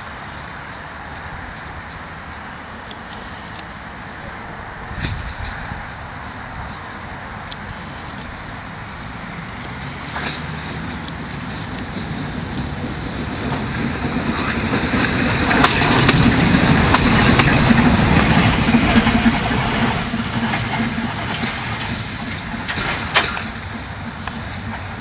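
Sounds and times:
tram wheels clicking over rail joints: 0:00.0 - 0:04.0, 0:04.6 - 0:25.0
tram running gear rumbling: 0:00.0 - 0:25.0.

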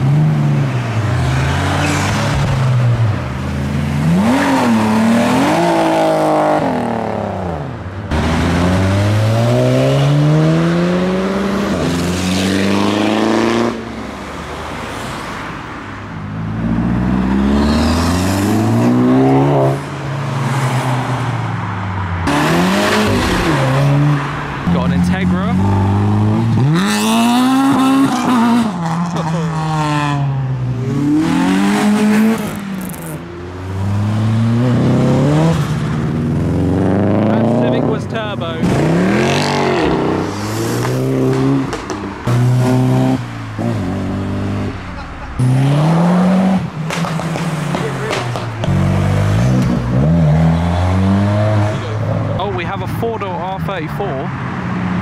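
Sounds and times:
car engine revving hard: 0:04.0 - 0:13.9, 0:16.6 - 0:19.8, 0:22.2 - 0:30.3, 0:30.9 - 0:52.2.

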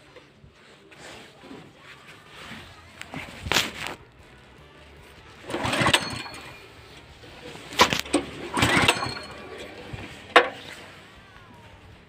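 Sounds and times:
engine pull-start rope pulls: 0:05.4 - 0:10.9.

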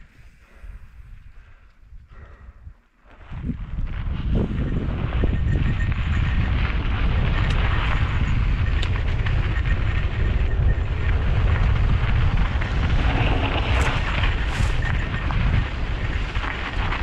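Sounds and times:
wind rumbling on microphone: 0:00.0 - 0:17.0
sharp clicks from bike: 0:06.6 - 0:17.0.

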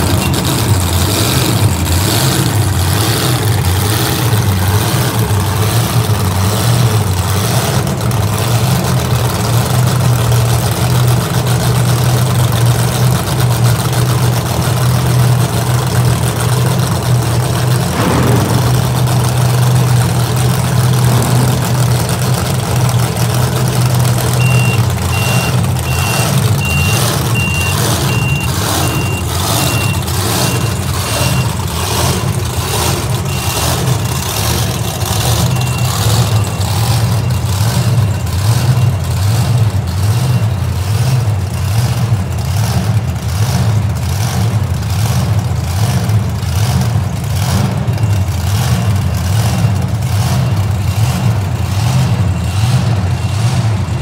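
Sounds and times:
high electronic beeps: 0:00.0 - 0:00.8, 0:24.3 - 0:31.5
truck engine idling: 0:00.0 - 0:54.0.

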